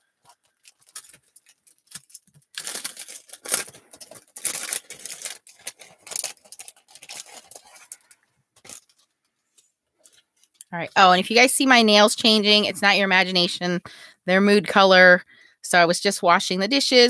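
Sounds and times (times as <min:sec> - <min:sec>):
cellophane packaging crinkling: 0:00.0 - 0:11.0.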